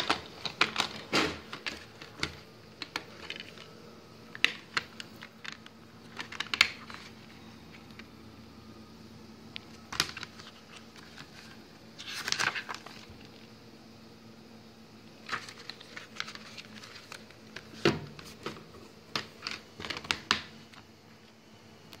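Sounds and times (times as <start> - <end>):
plastic case clicks and rustling: 0.0 - 3.7, 4.3 - 7.1.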